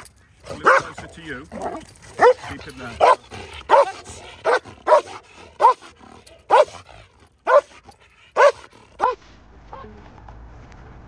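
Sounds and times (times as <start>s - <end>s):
dog barking loudly: 0.5s - 9.2s.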